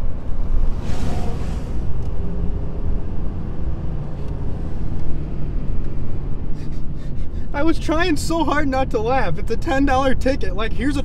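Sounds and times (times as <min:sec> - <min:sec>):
road and engine rumble: 0:00.0 - 0:11.0
brief rush of hiss: 0:00.7 - 0:01.9.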